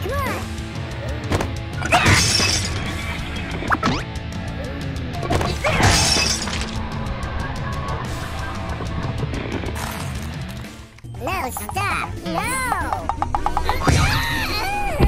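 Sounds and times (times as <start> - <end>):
glass cracking and shattering: 5.8 - 6.8
background music with steady beat: 10.3 - 15.0.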